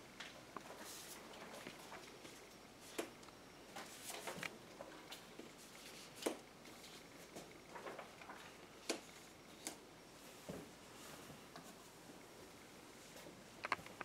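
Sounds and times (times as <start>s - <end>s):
paper rustling: 3.7s - 9.2s.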